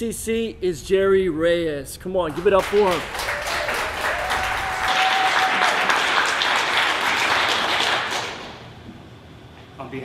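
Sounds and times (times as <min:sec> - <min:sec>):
audience applauding: 0:02.3 - 0:08.6.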